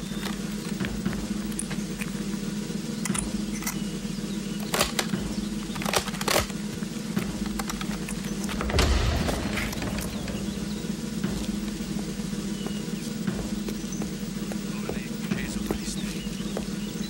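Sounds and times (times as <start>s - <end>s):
steady low hum: 0.0s - 17.0s
loud thump: 8.5s - 11.8s.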